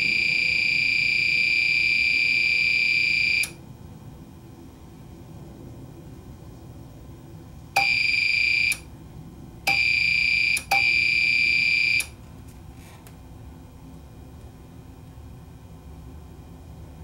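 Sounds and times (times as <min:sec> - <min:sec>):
alarm beeping: 0:00.0 - 0:03.6, 0:07.8 - 0:08.8, 0:09.7 - 0:12.2.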